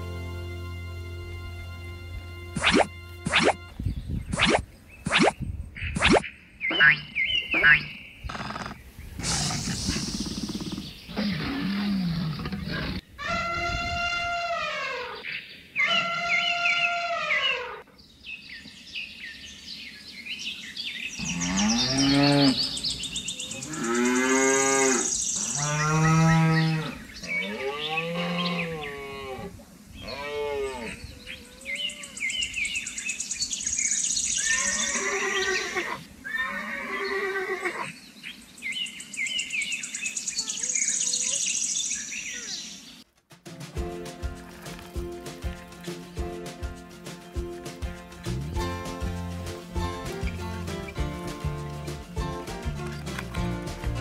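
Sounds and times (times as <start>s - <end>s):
cattle mooing: 21.2s - 22.7s.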